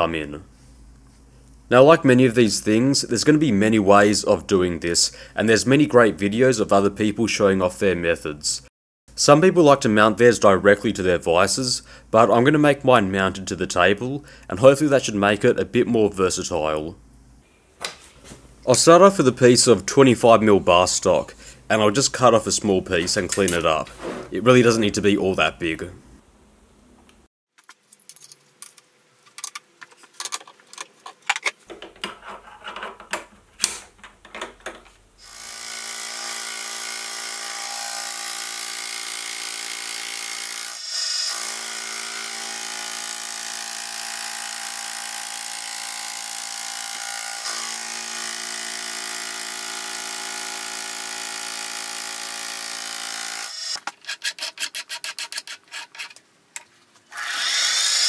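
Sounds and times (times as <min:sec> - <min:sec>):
handling knocks and clicks: 0:27.6 - 0:35.1.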